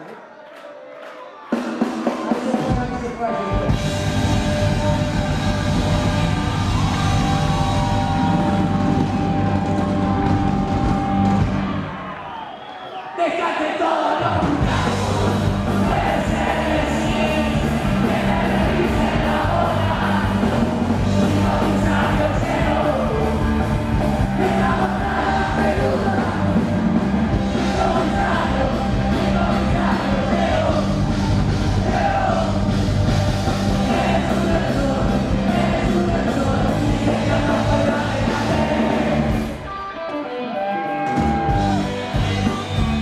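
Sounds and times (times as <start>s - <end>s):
live rock band playing: 1.6s - 12.0s, 14.4s - 43.0s
person singing: 33.8s - 39.4s.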